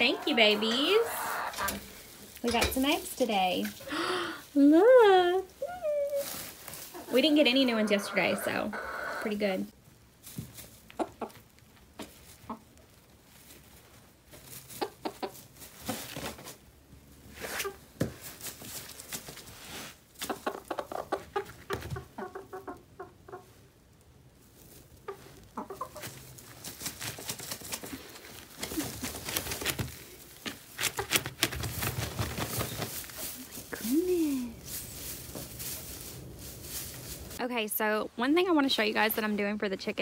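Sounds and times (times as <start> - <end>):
hens clucking: 0.0 - 3.0, 6.1 - 9.7, 10.9 - 11.5, 14.7 - 15.5, 20.2 - 23.8, 24.7 - 26.5.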